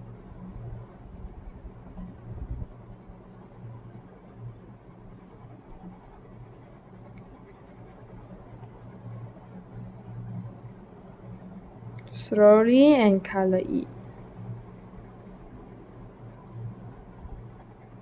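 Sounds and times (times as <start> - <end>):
pencil scratching on paper: 0.0 - 3.1, 6.2 - 8.4
low hum: 0.0 - 18.0.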